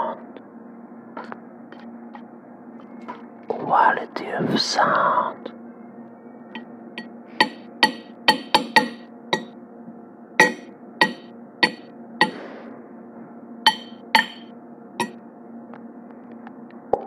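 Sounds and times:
tableware clinking: 13.7 - 15.2.

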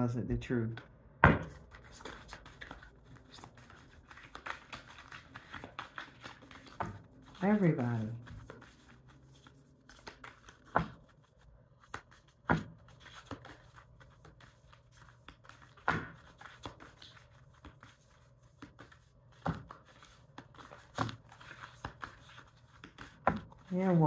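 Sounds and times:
cards snapping and tapping: 0.8 - 7.1, 9.9 - 11.1.

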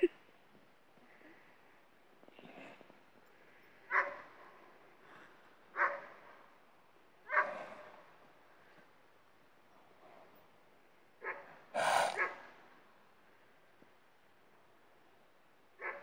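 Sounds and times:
dog barking: 3.9 - 4.3, 5.8 - 6.1, 7.3 - 7.6, 11.2 - 12.4, 15.8 - 16.0.

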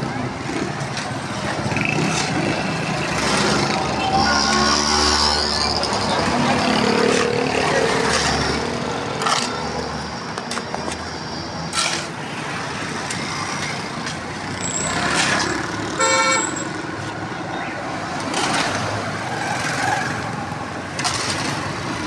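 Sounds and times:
vehicle engines running: 0.0 - 22.0.

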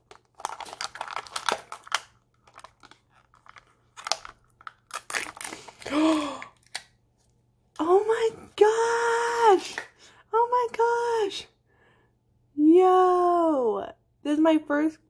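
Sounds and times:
plastic wrappers crinkling: 0.0 - 6.8.

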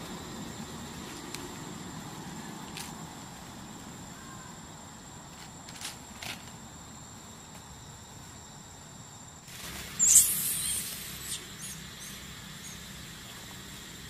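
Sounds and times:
high insect trill: 0.0 - 14.0
loud hissy burst of noise: 9.4 - 14.0.

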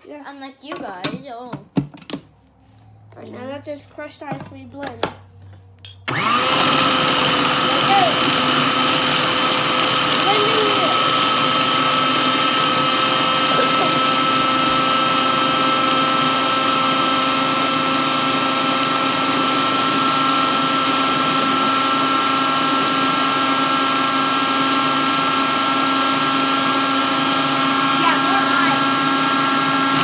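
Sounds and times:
food processor motor whine: 6.1 - 30.0.

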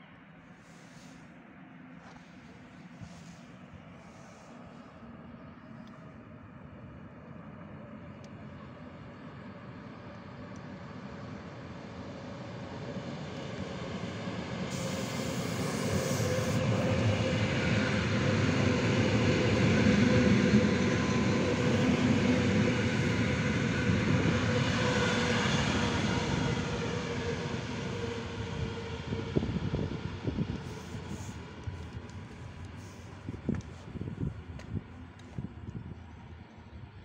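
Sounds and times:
train wheels rumbling on rails: 12.3 - 36.2.

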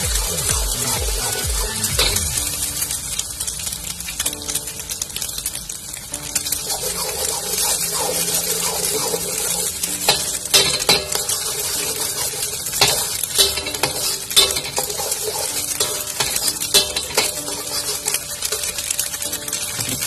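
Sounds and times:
egg sizzling in oil: 0.0 - 20.0
metal spatula scraping wok: 6.3 - 20.0.

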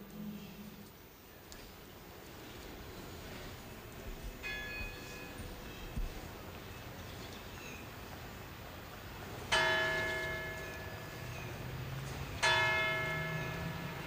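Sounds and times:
church bell ringing: 4.4 - 5.8, 9.5 - 14.0.

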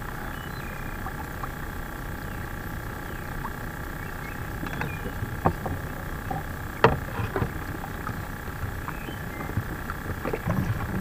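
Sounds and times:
steady hum: 0.0 - 11.0
fishing rod knocks and clatter: 6.8 - 7.6.

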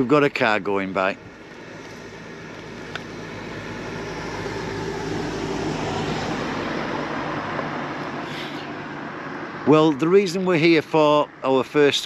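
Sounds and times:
car driving past: 1.4 - 10.0.

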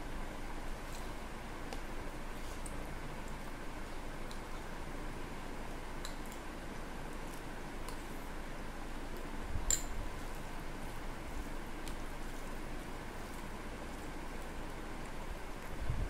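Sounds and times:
fingers squishing wet rice: 9.0 - 15.8.

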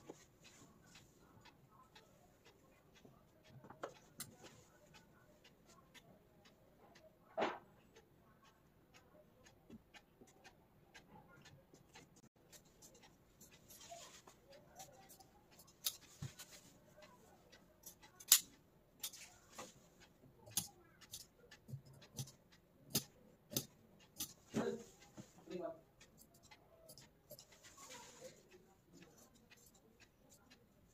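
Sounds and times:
soft fabric rustling: 13.6 - 14.5, 27.5 - 28.6
scissors clicking and snipping: 15.0 - 16.1, 17.8 - 19.2, 20.4 - 24.4, 26.2 - 27.4.

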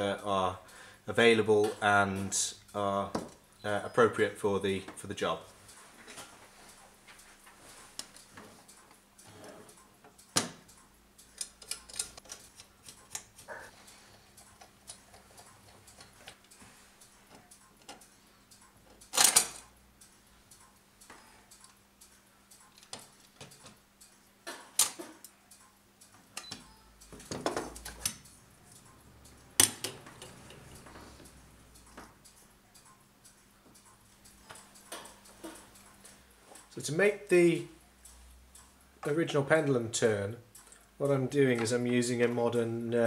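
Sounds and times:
small metal parts clicking: 9.2 - 16.6, 17.3 - 19.8.

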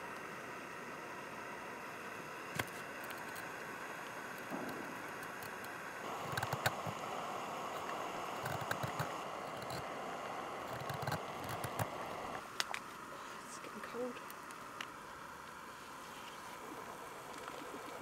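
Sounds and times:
steady background hiss: 0.0 - 18.0
knife scraping wood: 6.2 - 7.0.

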